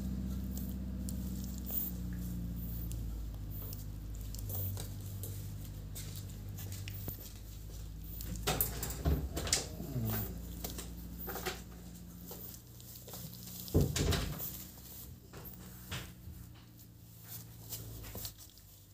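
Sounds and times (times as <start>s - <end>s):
puppies scuffling in a crate: 0.0s - 18.9s
steady low hum: 0.0s - 18.9s
paws knocking on crate bars: 0.1s - 18.3s.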